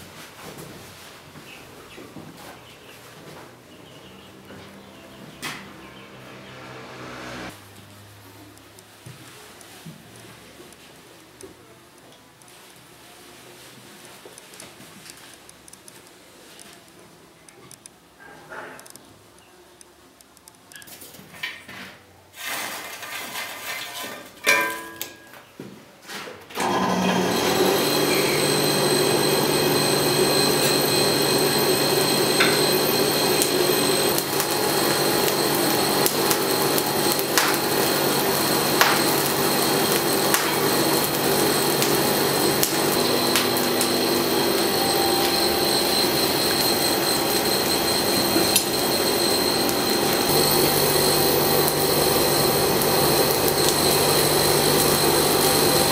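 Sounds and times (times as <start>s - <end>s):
knocks and clatters at forge: 23.0s - 25.4s, 38.8s - 39.1s
electric forge blower running: 26.6s - 55.9s
clicks from coal fire: 34.1s - 38.0s, 38.7s - 43.8s.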